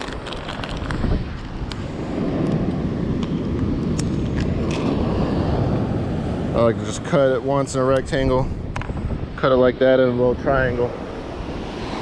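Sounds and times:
plastic packet crinkling: 0.0s - 1.0s
wind buffeting microphone: 0.0s - 12.0s.

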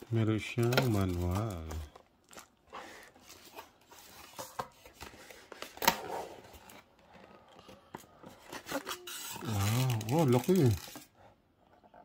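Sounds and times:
cardboard and paper rustling: 0.0s - 11.2s.

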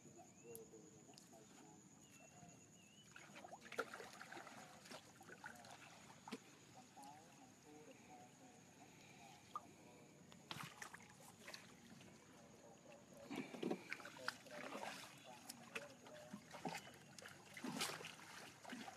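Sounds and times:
faint water splashes and knocks: 3.0s - 7.2s, 10.4s - 18.9s.

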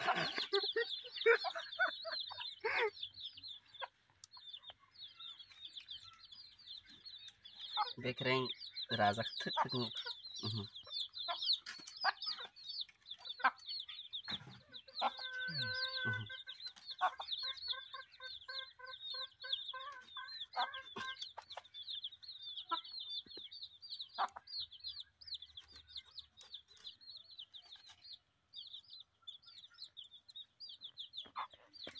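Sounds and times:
chicken clucking: 0.0s - 31.9s
chicks peeping: 0.0s - 31.9s.

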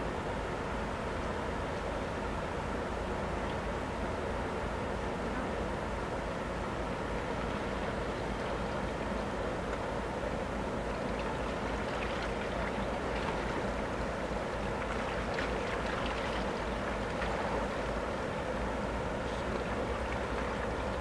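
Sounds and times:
churning water: 6.7s - 21.0s.

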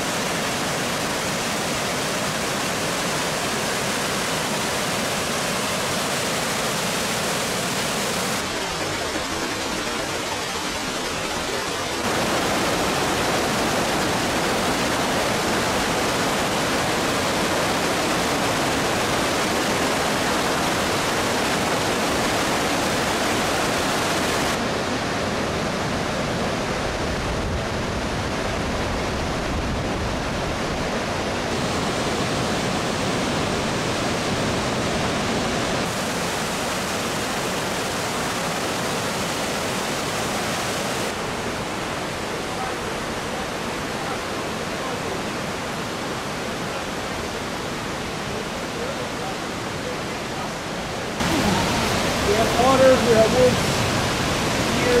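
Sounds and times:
rushing waterfall water: 0.0s - 55.0s.

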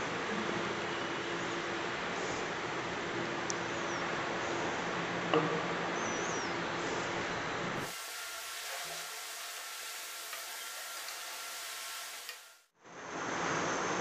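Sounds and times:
pot hissing over gas flame: 7.8s - 12.7s.

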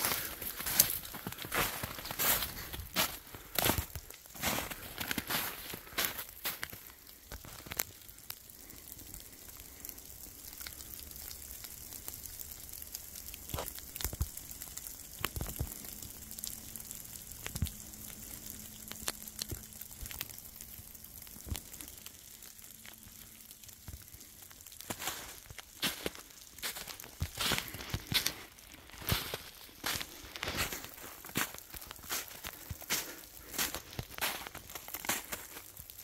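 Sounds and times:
footsteps crunching on dry ground: 0.0s - 8.1s, 24.0s - 36.0s.

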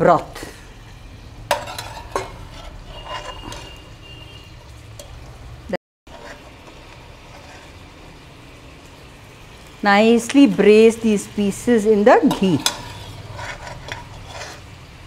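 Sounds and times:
utensils clinking on pan: 1.5s - 3.9s, 12.1s - 14.7s
chicken sizzling in a pan: 6.1s - 15.0s.

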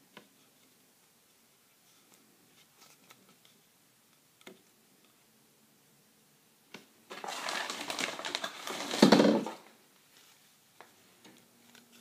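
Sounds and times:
plastic packaging crinkling: 7.1s - 9.7s.

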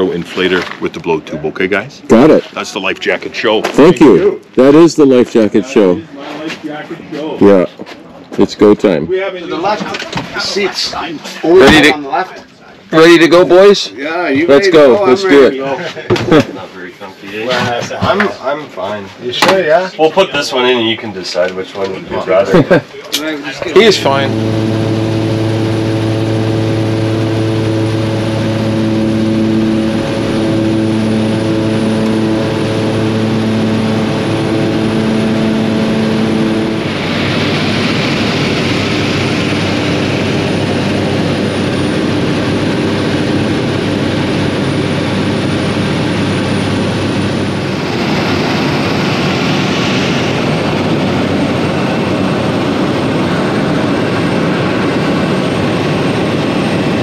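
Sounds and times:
propeller engine droning: 22.0s - 57.0s
harsh rushing noise: 23.5s - 57.0s.

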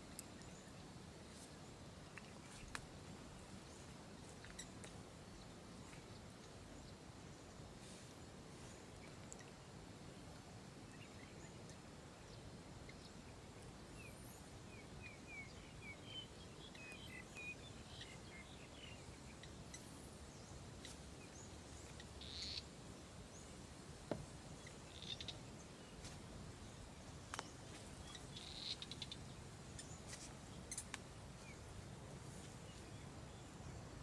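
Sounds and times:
low background noise: 0.0s - 34.0s
scattered clicks: 30.7s - 31.0s.

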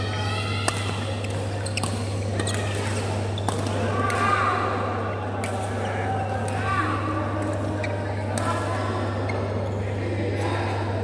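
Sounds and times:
rackets hitting shuttlecock: 0.6s - 4.3s, 5.4s - 5.8s
shoes squeaking on court floor: 1.1s - 3.6s.

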